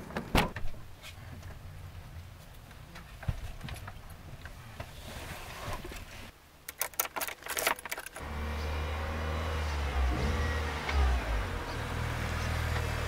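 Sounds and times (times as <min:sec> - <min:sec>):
car keys jangling: 0:06.7 - 0:08.2
car engine running: 0:08.2 - 0:13.0.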